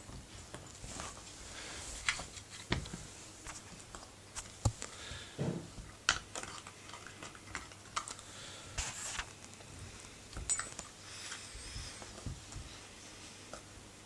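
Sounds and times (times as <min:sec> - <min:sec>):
puppy gnawing a chew: 0:05.8 - 0:08.3.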